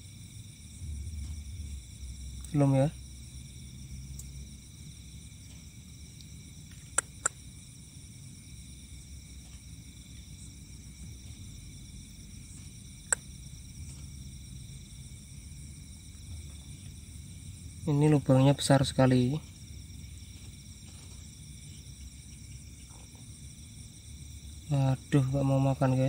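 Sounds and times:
low rumble: 0:00.0 - 0:18.5
crickets and insects calling: 0:00.0 - 0:26.0
sharp clicks: 0:06.7 - 0:07.4.

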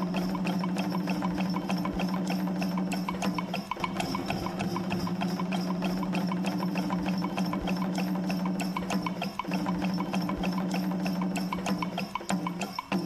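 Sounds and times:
fast ticking beat: 0:00.0 - 0:13.0.

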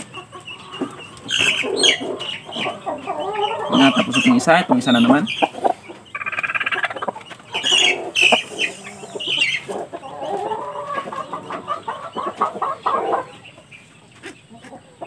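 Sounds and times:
rooster clucking: 0:00.0 - 0:15.0
rooster squawking: 0:05.2 - 0:09.7.

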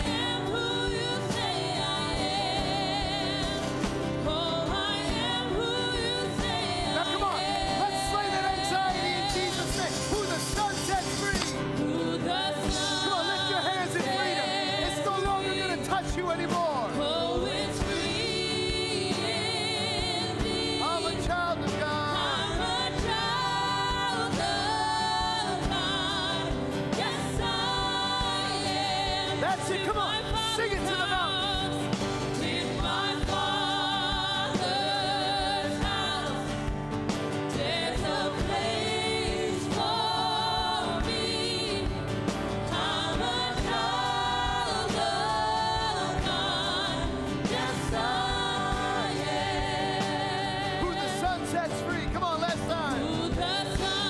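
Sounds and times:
woman singing with vibrato: 0:00.0 - 0:09.4, 0:22.0 - 0:36.6
strummed acoustic guitar: 0:00.0 - 0:54.0
voices singing along: 0:00.0 - 0:54.0.

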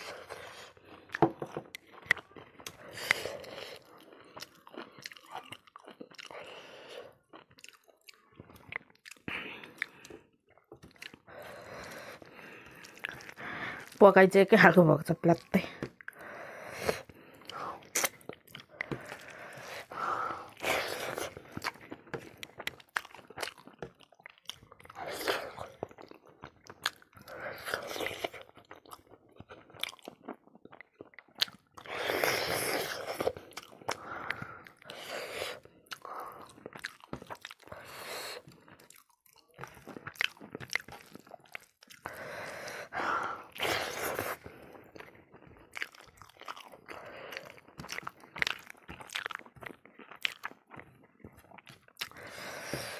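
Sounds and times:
chewing and crunching food: 0:00.0 - 0:52.9
wet mouth sounds: 0:15.3 - 0:42.2, 0:42.8 - 0:52.9.

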